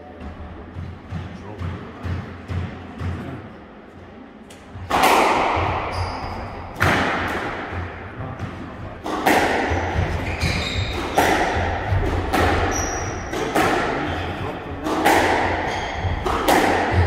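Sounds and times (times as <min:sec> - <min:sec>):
shoes squeaking on wooden floor: 0:05.9 - 0:06.6, 0:09.8 - 0:11.2
squash ball cracking off walls: 0:09.0 - 0:14.0.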